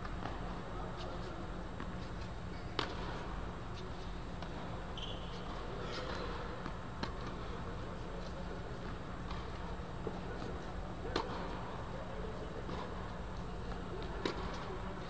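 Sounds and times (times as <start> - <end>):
steady low hum: 0.0 - 15.0
racket hitting tennis ball: 14.0 - 14.7.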